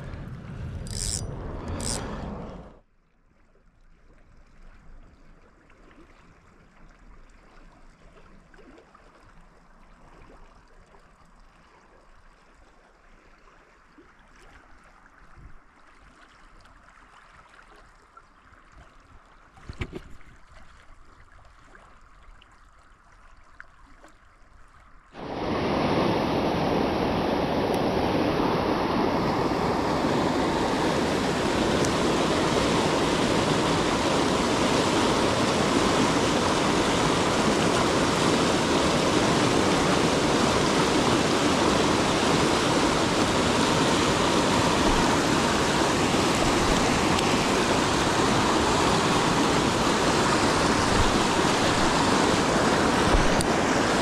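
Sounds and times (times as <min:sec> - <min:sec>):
river rushing over rapids: 0:25.2 - 0:54.0.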